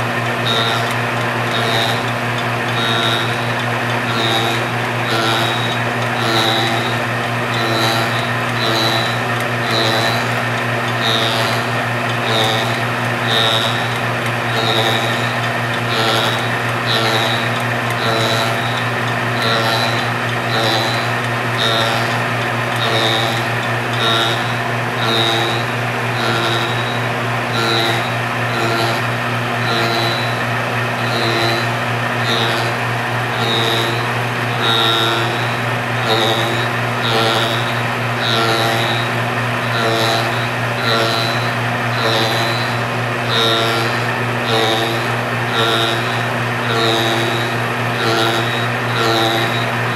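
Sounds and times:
lathe cutter cutting wood: 0.0s - 49.9s
steady motor hum: 0.0s - 49.9s.

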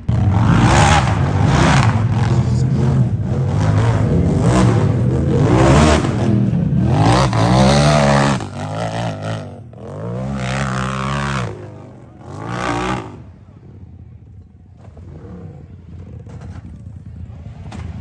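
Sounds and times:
engine revving hard: 0.0s - 13.3s.

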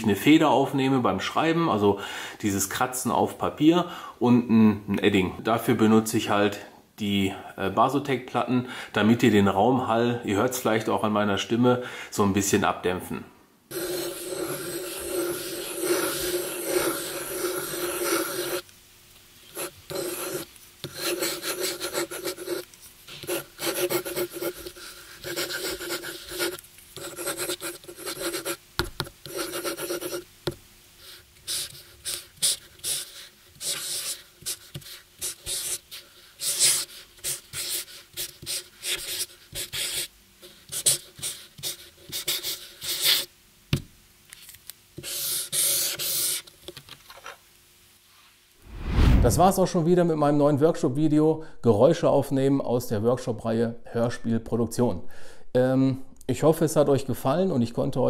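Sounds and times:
felt-tip marker strokes on paper: 13.7s - 18.6s, 31.0s - 43.3s
pen nib scratching on paper: 13.7s - 18.6s, 19.4s - 30.2s, 31.0s - 43.3s, 45.0s - 46.4s.

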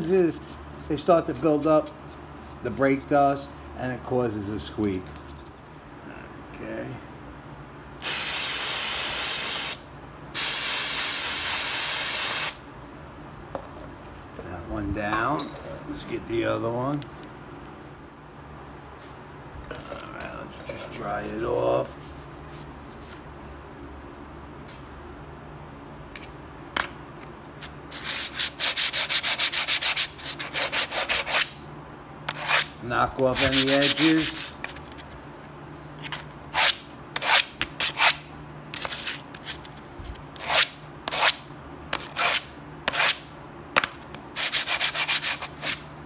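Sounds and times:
brake pad scraping on sandpaper: 32.3s - 35.3s, 36.0s - 39.8s.

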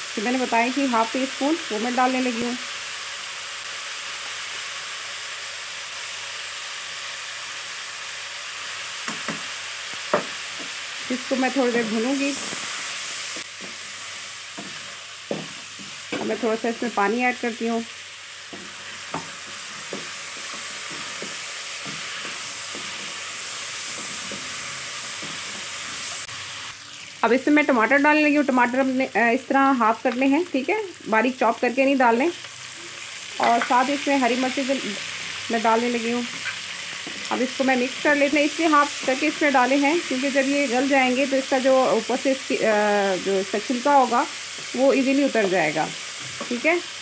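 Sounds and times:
meat sizzling in oil: 0.0s - 47.0s
wooden spoon scraping a pan: 10.5s - 16.9s, 18.4s - 26.3s, 36.2s - 38.0s.

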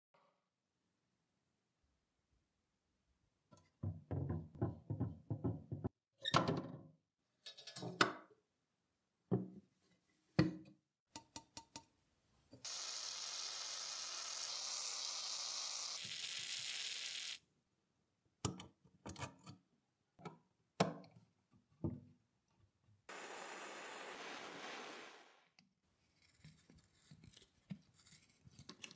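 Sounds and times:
aerosol spray hissing: 12.7s - 17.4s.

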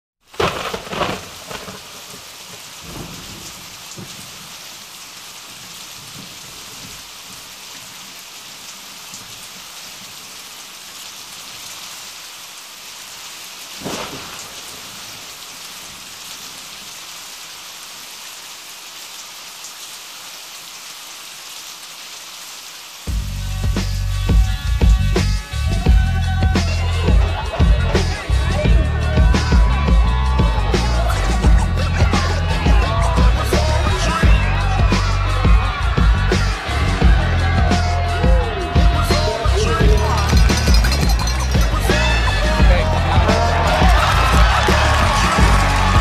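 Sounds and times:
heavy rain: 0.2s - 46.0s
thunder cracks: 0.3s - 4.5s, 13.8s - 15.4s.

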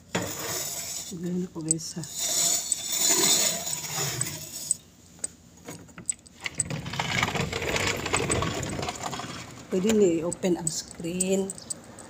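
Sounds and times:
light clicks and rattles: 3.7s - 12.0s.

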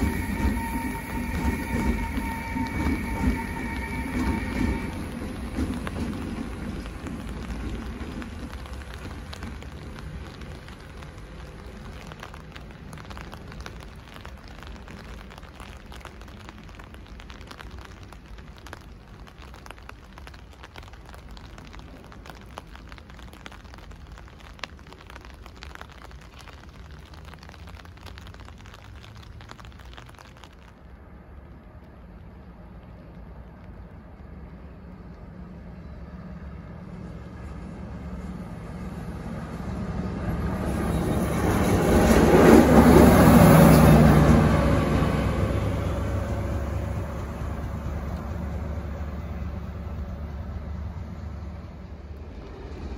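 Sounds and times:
electric locomotives rumbling: 0.0s - 16.0s, 32.4s - 52.9s
low rumble and hiss with crackles: 0.0s - 52.9s.

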